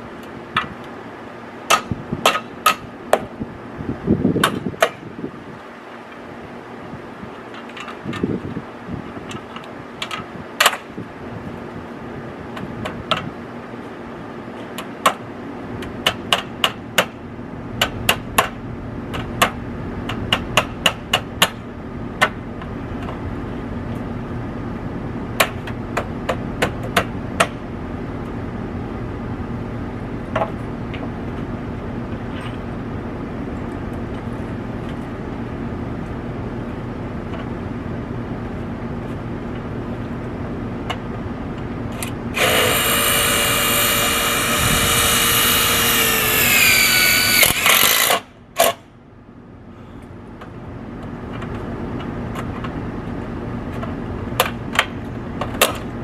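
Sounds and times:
steady low hum: 0.0 - 56.0
cordless drill whining: 42.4 - 48.2.

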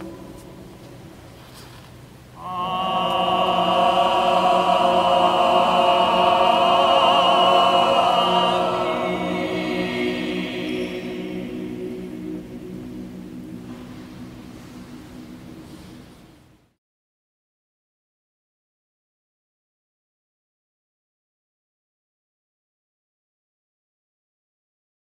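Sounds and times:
steady musical accompaniment: 0.0 - 16.7
operatic singing: 2.4 - 15.8.

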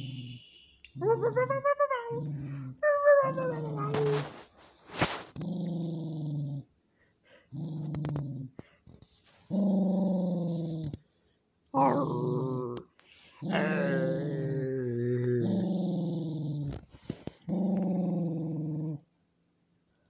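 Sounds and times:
small dog growling: 0.2 - 6.7, 7.3 - 8.8, 9.5 - 11.0, 11.8 - 19.1
dog whining: 1.0 - 4.4.

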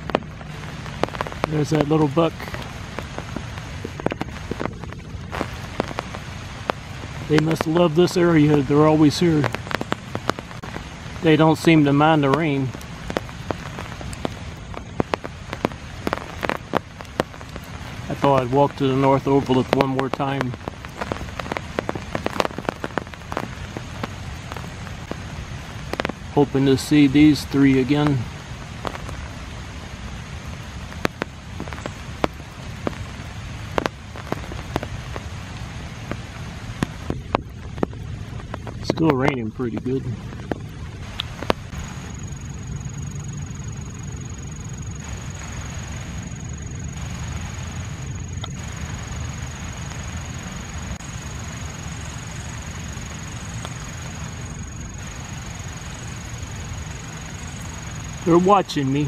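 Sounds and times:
steady rain: 0.0 - 59.0
large drops tapping: 11.5 - 25.2, 31.0 - 33.1.

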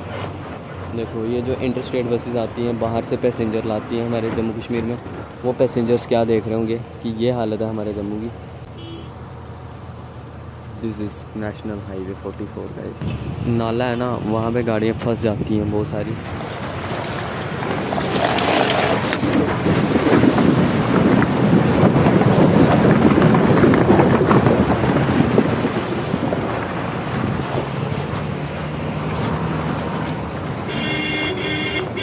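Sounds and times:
wind buffeting microphone: 14.6 - 30.7
wheels splashing through water: 15.9 - 32.0.

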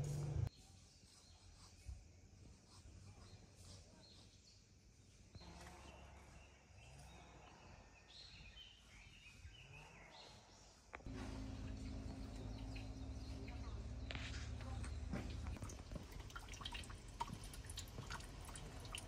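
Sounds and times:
steady low hum: 0.0 - 0.5, 11.0 - 19.0
faint woodland ambience: 0.0 - 19.0
small birds chirping: 0.4 - 19.0.

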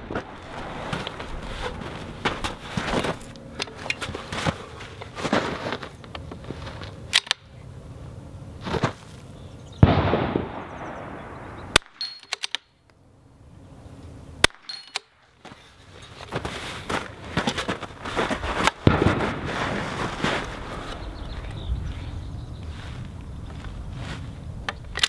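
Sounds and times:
clatter and rustle: 0.0 - 7.3, 15.4 - 21.0
rifle shots: 9.8 - 12.6, 18.8 - 19.7
rifle bolt clicking: 11.8 - 12.7.

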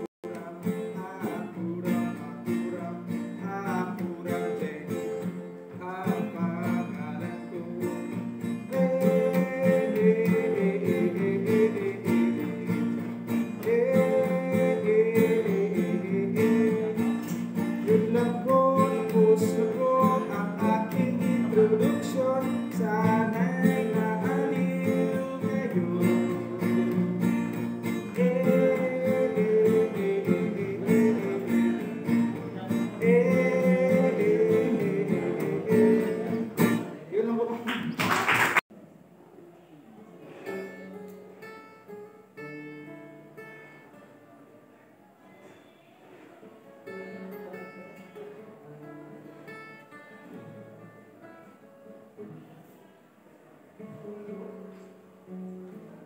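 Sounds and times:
acoustic guitar strumming chords: 0.0 - 37.6, 40.2 - 43.9
man singing: 0.0 - 37.7.

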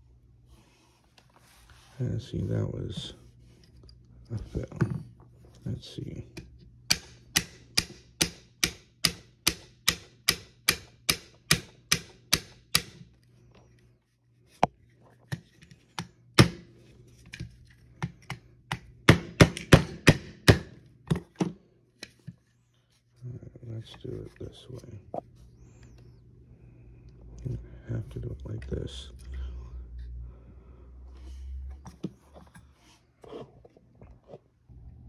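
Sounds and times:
small hammer tapping metal pin: 6.4 - 13.0.

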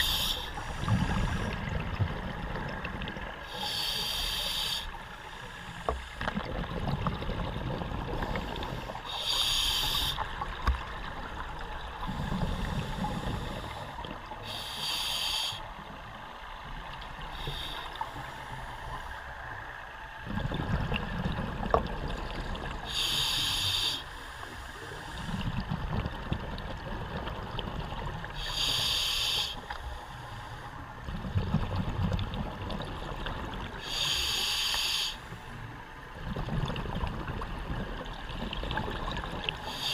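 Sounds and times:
regulator inhalation hiss: 0.0 - 1.5, 3.5 - 6.1, 9.1 - 10.2, 12.5 - 15.7, 17.3 - 19.2, 22.9 - 25.4, 28.4 - 30.6, 33.8 - 35.4, 39.6 - 39.9
exhaled air bubbling: 0.0 - 5.2, 6.0 - 15.3, 20.2 - 23.9, 25.1 - 29.3, 31.0 - 34.2, 36.1 - 39.9.

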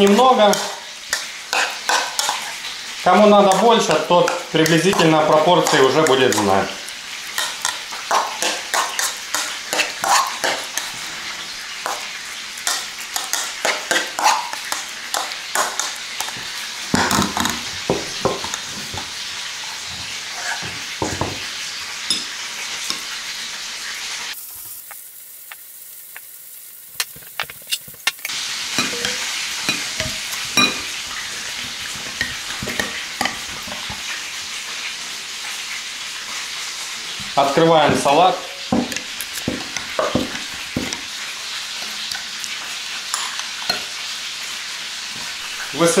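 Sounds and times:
steady sizzling hiss: 0.0 - 46.0
metal spoon scraping ceramic bowl: 8.4 - 10.9.

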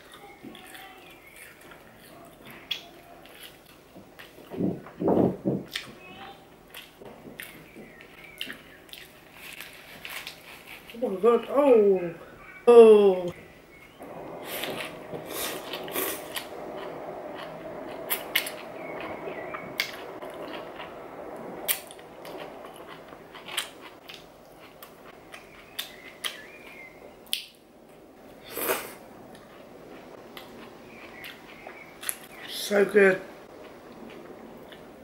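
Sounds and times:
mouth chewing food: 0.0 - 4.6, 21.7 - 27.5, 28.4 - 32.5, 33.5 - 34.9.

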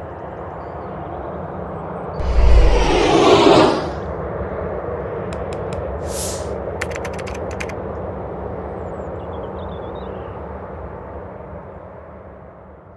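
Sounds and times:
brief whoosh: 2.2 - 4.1
jet engine rumble: 2.2 - 4.1
sharp clicks: 6.8 - 7.8.

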